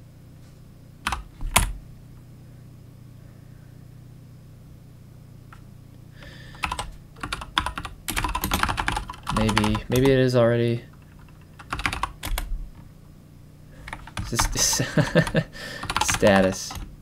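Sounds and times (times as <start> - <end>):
low steady hum: 0.0 - 17.0
keyboard typing: 1.0 - 1.8, 6.5 - 10.2, 10.9 - 12.5, 13.8 - 16.9.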